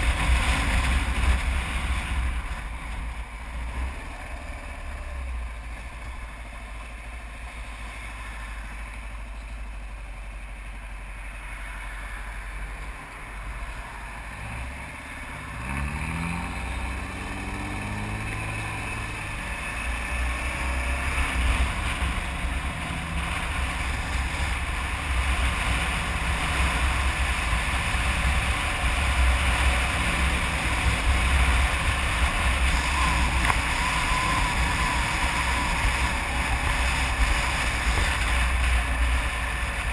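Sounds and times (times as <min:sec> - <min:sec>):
wind rushing over microphone: 0:00.0 - 0:04.2
road noise: 0:00.0 - 0:39.9
motorcycle engine running: 0:13.1 - 0:39.9.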